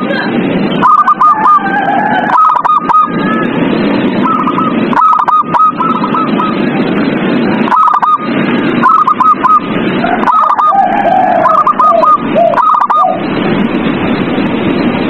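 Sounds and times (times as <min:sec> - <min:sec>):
steady background noise: 0:00.0 - 0:15.0
dove cooing: 0:00.8 - 0:03.5, 0:04.2 - 0:06.6, 0:07.7 - 0:13.2.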